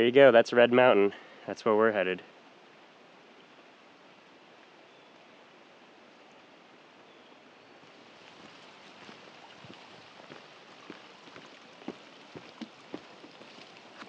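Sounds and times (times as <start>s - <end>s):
flowing creek water: 0.2s - 14.0s
footsteps on rock and gravel: 8.1s - 14.0s.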